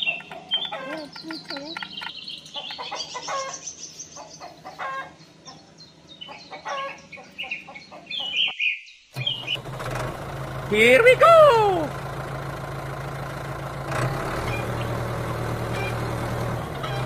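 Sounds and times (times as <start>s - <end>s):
hens clucking: 0.0s - 8.5s, 16.7s - 17.0s
birds chirping: 0.0s - 9.7s, 14.5s - 17.0s.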